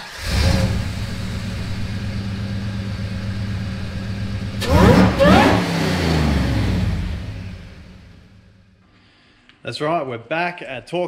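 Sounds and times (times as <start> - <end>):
car engine idling and revving: 0.0 - 8.8.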